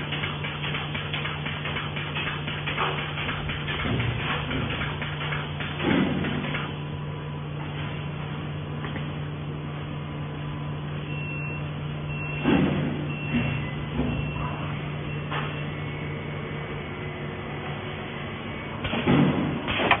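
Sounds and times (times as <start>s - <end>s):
welding machine humming: 0.0s - 9.2s.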